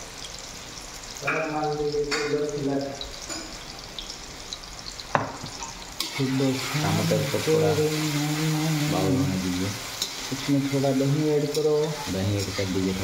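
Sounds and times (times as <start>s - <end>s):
sauce sizzling in a pan: 0.0s - 13.0s
sharp knocks against pan: 5.1s - 5.6s
person humming or talking: 6.4s - 9.8s.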